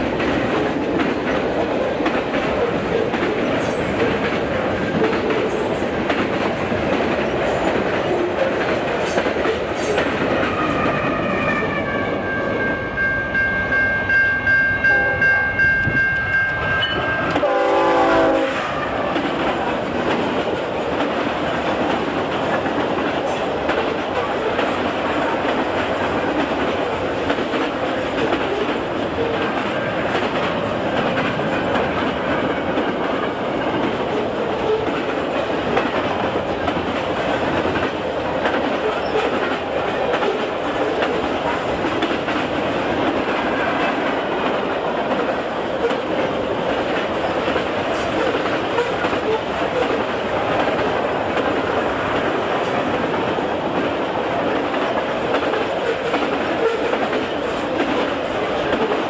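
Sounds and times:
train wheel and rail noise: 0.0 - 59.0
locomotive air horn chord: 17.3 - 19.0.

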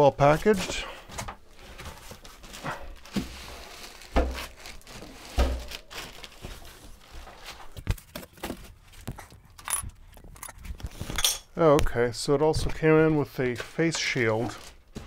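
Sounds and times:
plastic and foam rustling: 0.0 - 11.8, 12.4 - 15.0
dull thumps: 4.0 - 6.6.

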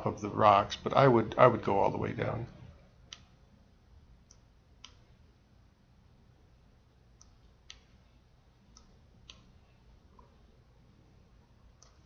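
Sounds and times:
low room hum: 0.0 - 12.0
computer mouse clicks: 3.1 - 3.4, 4.2 - 5.1, 8.7 - 9.6, 11.8 - 12.0.

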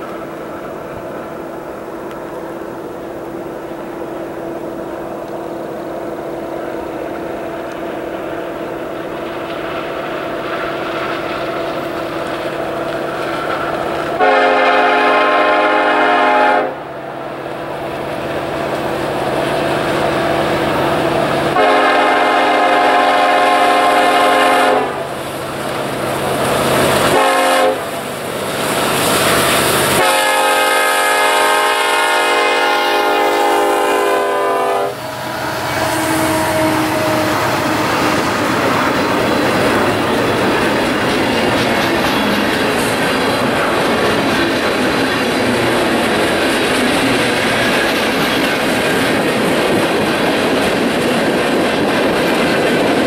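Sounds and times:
locomotive rumble: 0.0 - 53.0
train air horn blasts: 14.2 - 16.9, 21.5 - 25.1, 27.1 - 28.0, 30.0 - 39.3.

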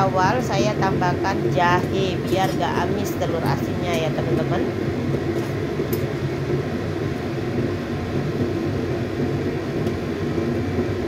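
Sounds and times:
soup boiling and bubbling: 4.7 - 11.0.

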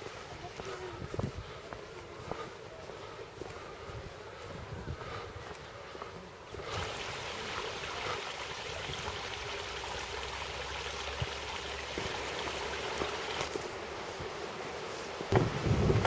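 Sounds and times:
stream trickling over stones: 6.5 - 16.0.

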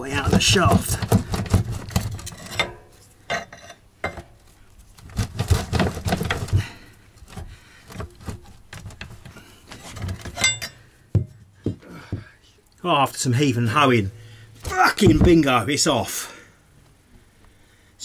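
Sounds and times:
metal clinks and scrapes of pump: 0.2 - 4.3, 7.9 - 10.9.

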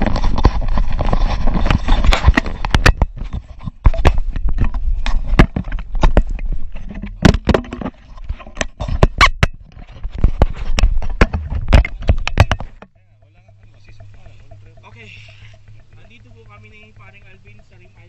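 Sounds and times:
camera handling knocks: 10.2 - 12.9.

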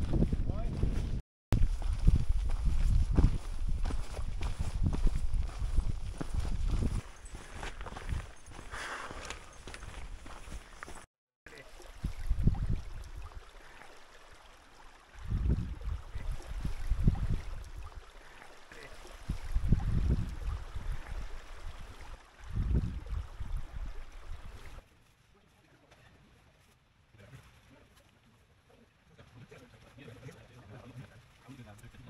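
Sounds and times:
wind buffeting microphone: 0.0 - 8.7, 12.0 - 13.5, 15.2 - 18.1, 19.2 - 24.8.

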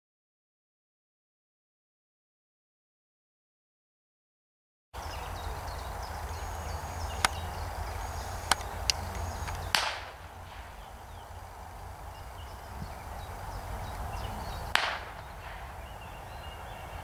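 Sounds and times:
small birds chirping: 5.0 - 17.0
wind rumbling on microphone: 5.0 - 17.0
sharp cracks: 7.2 - 7.4, 8.4 - 11.1, 13.9 - 16.2.

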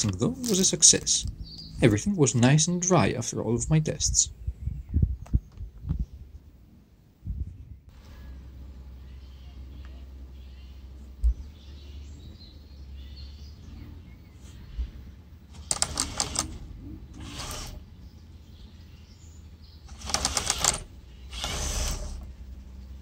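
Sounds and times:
birds chirping faintly: 0.0 - 23.0
motor whirring: 15.5 - 17.9, 19.9 - 22.4
plastic gears and tracks clattering: 15.6 - 17.8, 19.9 - 22.3.

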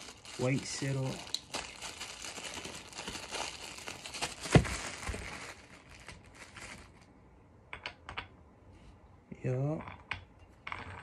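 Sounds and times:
plastic packaging crinkling: 0.0 - 7.1.

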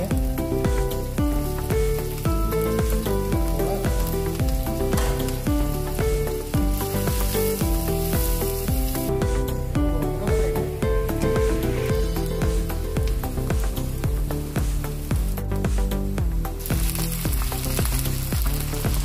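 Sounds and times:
instrumental music with steady beat: 0.0 - 19.0
onions sizzling in a pan: 0.0 - 19.0.

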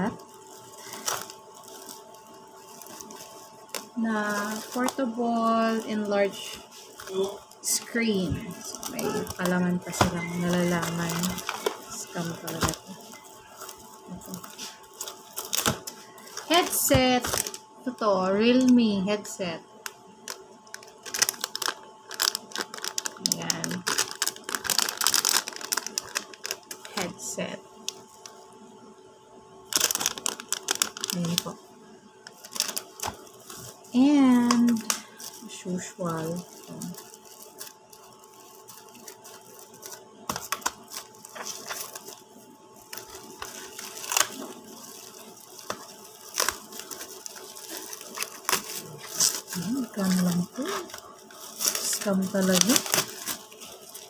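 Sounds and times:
plastic pouch crinkling: 0.0 - 18.0, 19.8 - 27.2, 27.8 - 28.5, 29.6 - 31.6, 32.2 - 54.0
plastic film crackling: 0.0 - 28.6, 29.6 - 54.0
person speaking a word: 8.8 - 9.4.

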